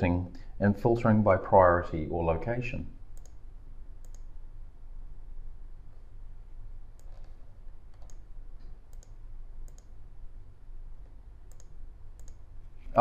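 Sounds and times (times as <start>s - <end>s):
low steady hum: 0.0s - 13.0s
computer mouse clicking: 3.2s - 3.4s, 4.0s - 4.3s, 7.0s - 10.0s, 11.5s - 12.5s.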